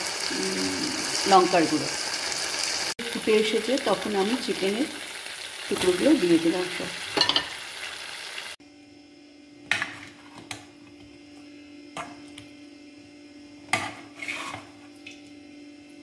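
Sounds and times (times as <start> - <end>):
chicken sizzling in sauce: 0.0 - 8.6
metal spoon scraping steel bowl: 13.8 - 14.8.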